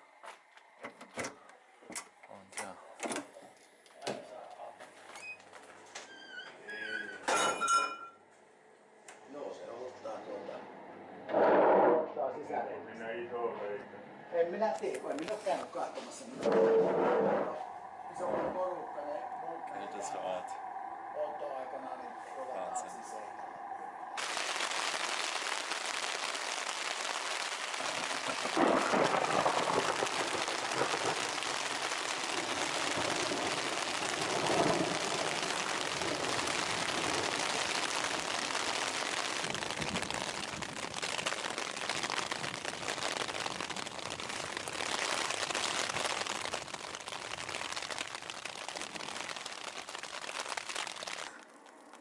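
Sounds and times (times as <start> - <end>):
rain on tent fabric: 0.0 - 0.8, 15.0 - 19.0, 24.2 - 52.0.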